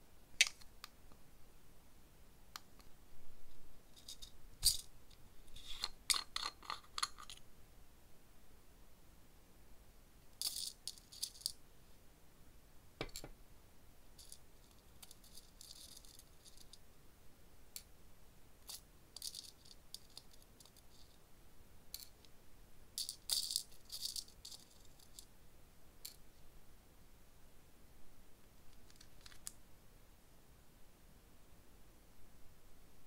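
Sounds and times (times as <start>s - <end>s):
small charms rattling in plastic jar: 4.0s - 4.9s, 10.4s - 11.6s, 14.2s - 16.8s, 18.7s - 21.2s, 23.0s - 25.2s.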